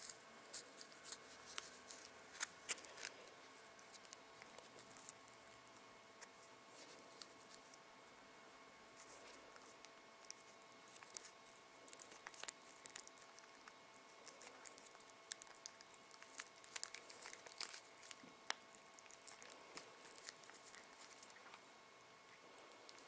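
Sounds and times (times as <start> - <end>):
cats licking and chewing: 0.0 - 8.2, 8.9 - 23.0
packaging crinkling: 9.0 - 21.6.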